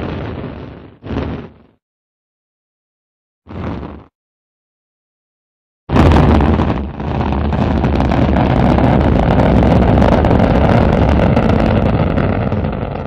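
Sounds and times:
rocket engine firing: 5.9s - 13.0s.

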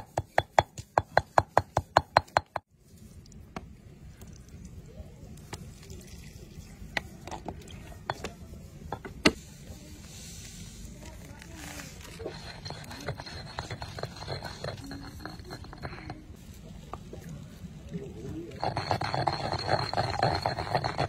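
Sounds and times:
stone pestle pounding in mortar: 0.0s - 2.7s, 12.3s - 16.1s, 18.6s - 21.0s.

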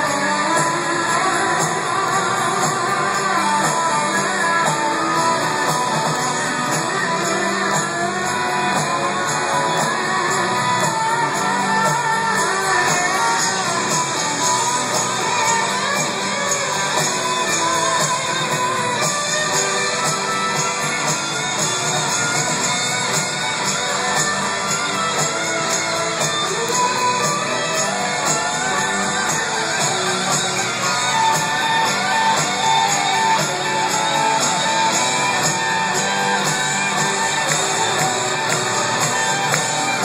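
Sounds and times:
electric guitar: 0.0s - 40.0s
rock band playing live: 0.0s - 40.0s.

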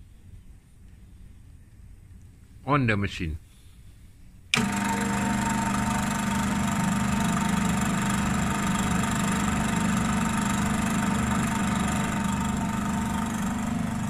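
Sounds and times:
compressor humming: 4.5s - 14.0s.

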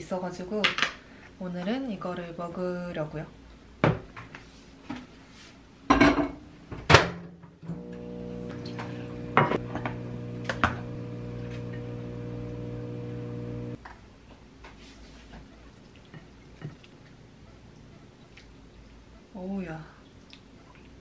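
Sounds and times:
steady hum: 7.8s - 13.8s.

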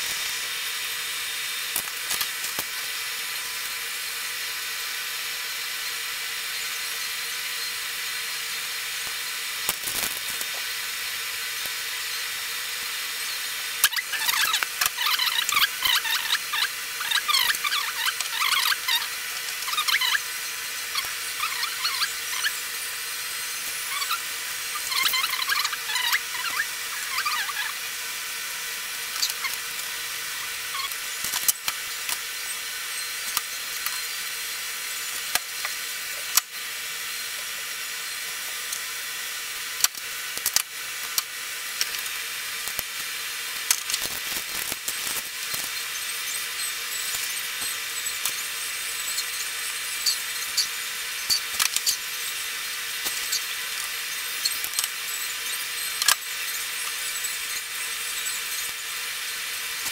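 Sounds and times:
wire stripper working: 0.0s - 59.9s
clicks and rustles of wires: 9.7s - 10.6s.

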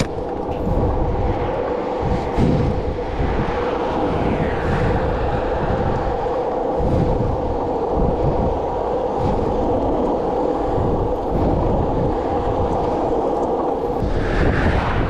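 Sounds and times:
skateboard wheels rolling on asphalt: 0.0s - 15.0s
wind buffeting microphone: 0.0s - 15.0s.

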